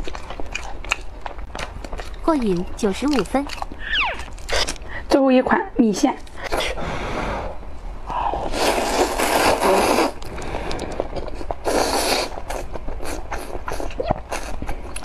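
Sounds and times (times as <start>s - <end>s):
wet chewing clicks: 0.0s - 4.9s, 9.2s - 15.0s
loud noodle slurps: 8.4s - 11.0s, 11.6s - 14.5s.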